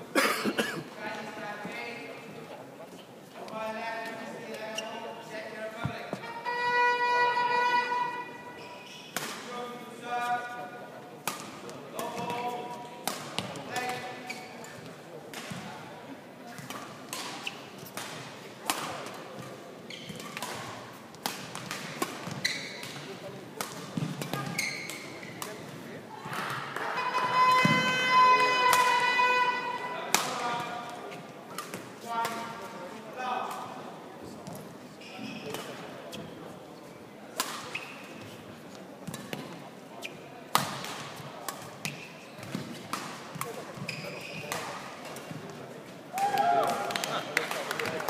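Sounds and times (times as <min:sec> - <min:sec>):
shoes squeaking on court: 0:04.6 - 0:05.1, 0:08.5 - 0:09.2, 0:12.1 - 0:15.6, 0:16.5 - 0:18.0, 0:19.4 - 0:21.0, 0:21.6 - 0:23.1, 0:23.8 - 0:25.8, 0:34.4 - 0:36.6, 0:37.6 - 0:40.4, 0:41.6 - 0:45.5
rackets hitting shuttlecock: 0:09.1 - 0:09.5, 0:11.2 - 0:14.3, 0:16.5 - 0:25.6, 0:27.5 - 0:29.1, 0:30.0 - 0:32.6, 0:37.3 - 0:38.0, 0:39.0 - 0:39.6, 0:40.5 - 0:45.6
rackets striking shuttlecock: 0:30.1 - 0:30.8, 0:37.3 - 0:37.8, 0:40.5 - 0:43.6.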